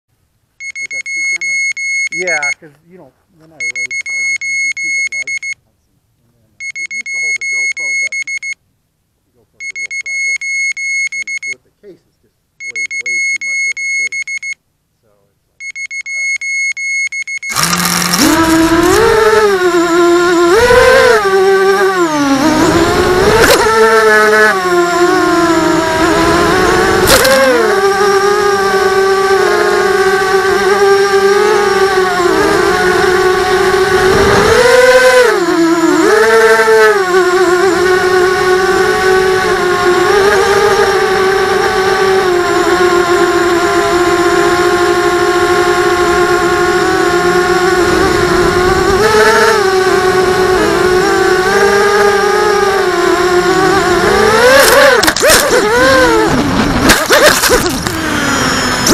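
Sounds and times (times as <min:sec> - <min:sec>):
quadcopter motors whining: 0:00.7 - 0:02.6, 0:03.4 - 0:05.3, 0:06.8 - 0:08.1, 0:12.6 - 0:14.1, 0:16.1 - 0:58.9
short rushes of noise: 0:17.2 - 0:28.0.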